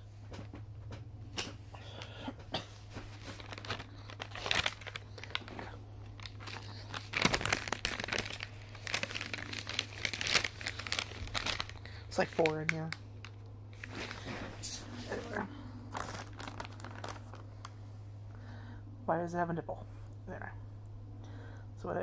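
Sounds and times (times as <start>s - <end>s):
low hum: 0.0s - 22.0s
plastic snack bag crinkling: 2.9s - 17.8s.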